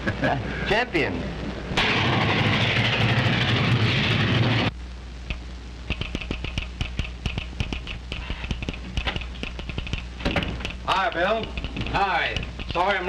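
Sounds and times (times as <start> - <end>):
telegraph sounder clicking: 5.3 - 13.0.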